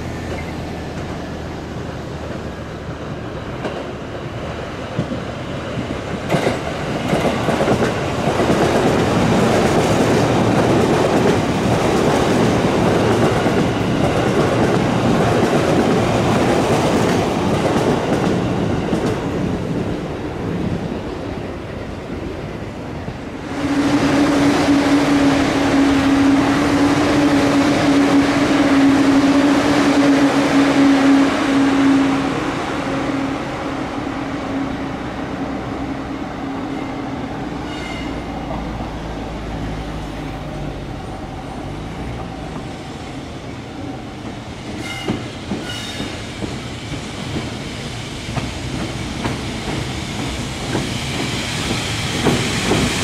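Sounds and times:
electric locomotive running: 0:23.1 - 0:53.0.

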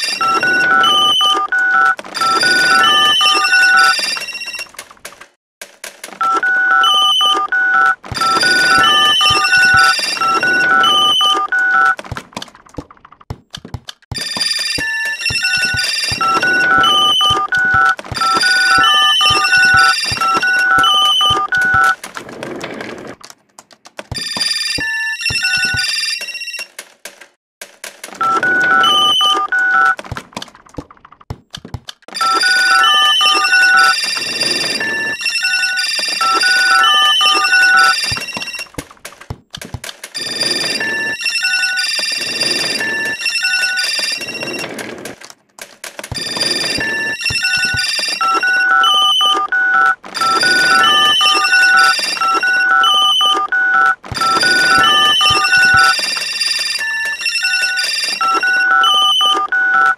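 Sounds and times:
electronic ringtone beeps: 0:00.0 - 0:04.7, 0:06.2 - 0:12.0, 0:14.2 - 0:22.0, 0:24.2 - 0:26.7, 0:28.2 - 0:30.0, 0:32.2 - 0:38.7, 0:40.2 - 0:44.8, 0:46.2 - 0:59.9.

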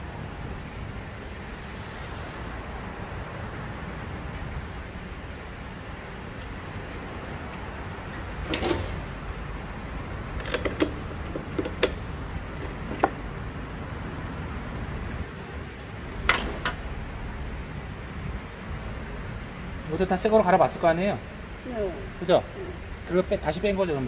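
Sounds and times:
steady low hum: 0:00.0 - 0:24.0
tools knocking and clicking: 0:10.4 - 0:13.2.

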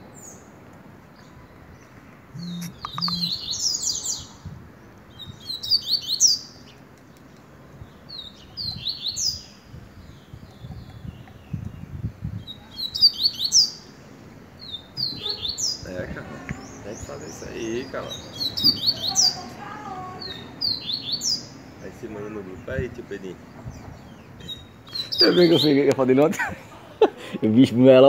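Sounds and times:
caged songbird singing: 0:01.1 - 0:26.2.

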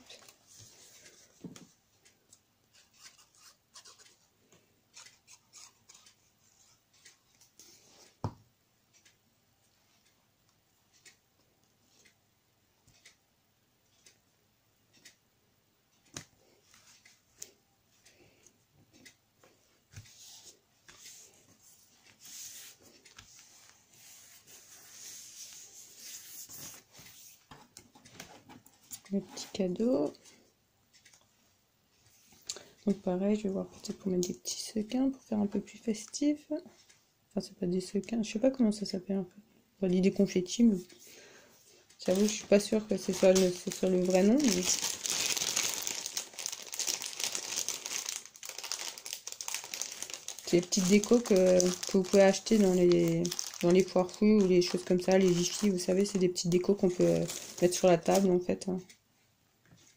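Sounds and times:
paper rustling on a surface: 0:20.0 - 0:27.6, 0:42.1 - 0:58.3.

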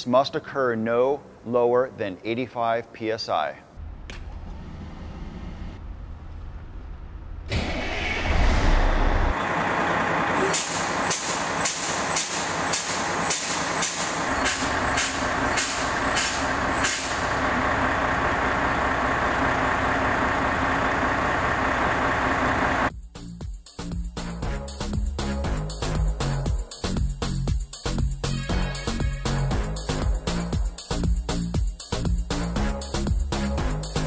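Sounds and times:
diesel engine running: 0:04.8 - 0:22.9
air brake exhaust hisses: 0:10.4 - 0:17.4.

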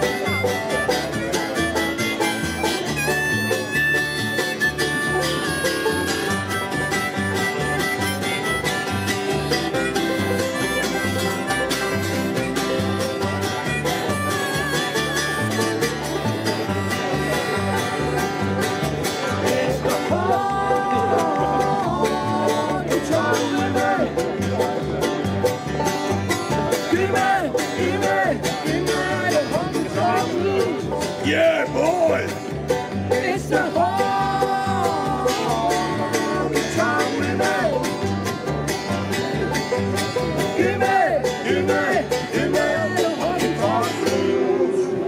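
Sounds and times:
harmonica: 0:00.0 - 0:44.8
banjo: 0:00.0 - 0:45.0
plucked upright bass: 0:00.0 - 0:45.0
strummed acoustic guitar: 0:00.0 - 0:45.0
people singing: 0:19.0 - 0:24.3, 0:26.7 - 0:32.3, 0:33.0 - 0:38.0, 0:40.4 - 0:45.0.

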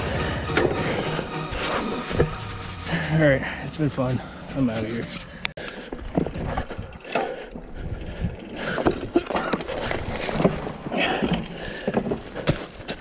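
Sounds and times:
bike tyres on dirt trail: 0:00.3 - 0:13.0
bike knocks and rattles: 0:05.7 - 0:13.0.

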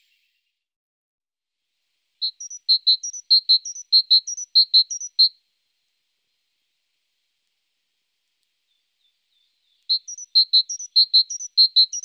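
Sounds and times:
songbird singing sharp notes: 0:02.2 - 0:05.3, 0:08.7 - 0:12.0.

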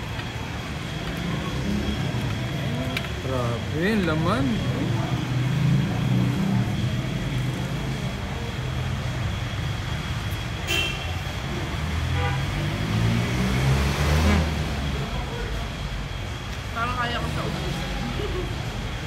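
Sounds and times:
traffic engine rumble: 0:00.0 - 0:19.0
car horn toot: 0:10.6 - 0:11.2, 0:12.2 - 0:12.5.

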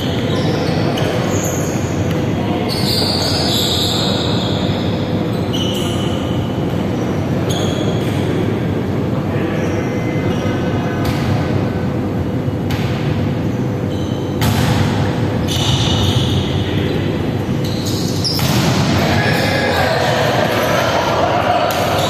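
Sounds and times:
sneakers squeaking on floor: 0:00.0 - 0:08.2, 0:13.4 - 0:18.8
rumble in sports hall: 0:00.0 - 0:22.0.

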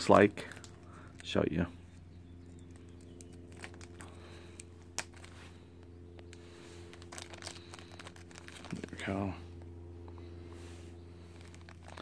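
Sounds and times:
steady low hum: 0:00.0 - 0:12.0
plastic bag crinkling: 0:02.7 - 0:05.6, 0:06.8 - 0:09.1, 0:11.2 - 0:12.0.

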